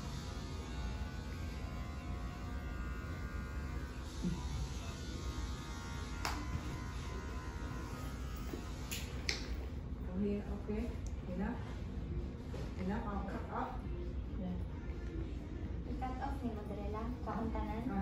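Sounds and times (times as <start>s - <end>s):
electric hair clippers buzzing: 0.0s - 9.6s.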